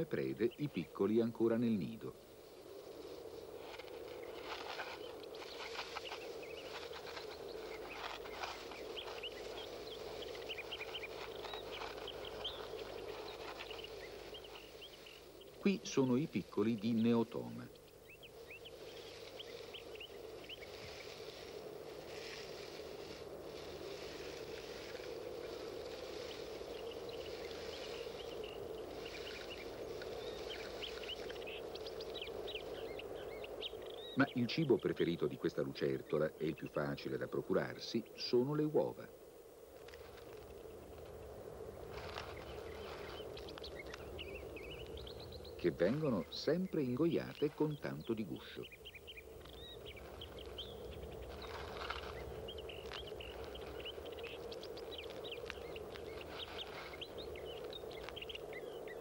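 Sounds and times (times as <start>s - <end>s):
dry grass rustling: 0.0s - 59.0s
baby rodents squeaking: 42.0s - 59.0s.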